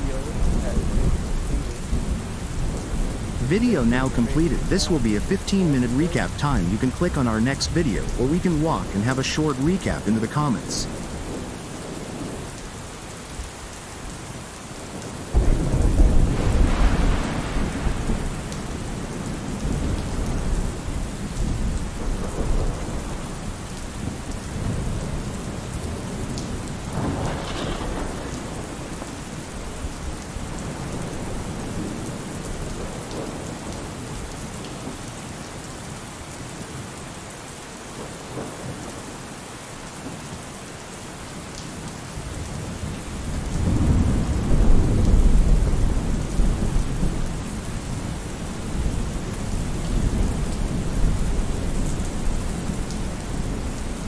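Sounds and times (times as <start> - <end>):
steady rain: 0.0 - 54.0
thunder rumbling: 15.0 - 23.2, 24.0 - 33.6, 42.9 - 54.0.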